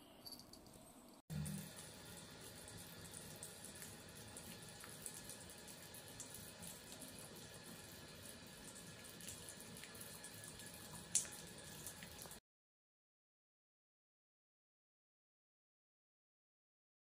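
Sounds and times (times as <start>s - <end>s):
tap water running into sink: 1.3s - 12.4s.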